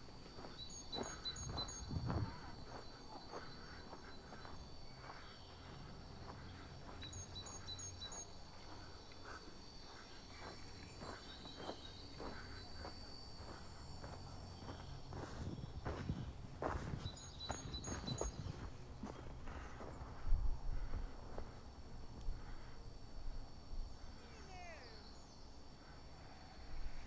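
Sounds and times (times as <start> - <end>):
footsteps on snow: 0.0 - 7.5, 8.5 - 21.6
faint high whine: 0.0 - 27.0.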